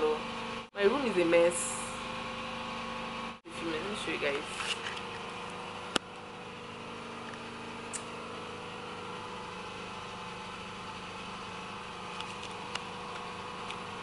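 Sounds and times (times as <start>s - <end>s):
petrol generator running: 0.0s - 14.0s
sharp click: 7.9s - 8.1s.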